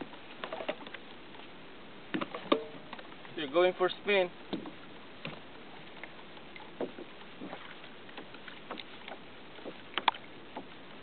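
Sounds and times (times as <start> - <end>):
water splashing against kayak hull: 0.0 - 11.0
sharp knocks on hull: 2.1 - 3.0, 4.5 - 5.4, 6.8 - 7.7.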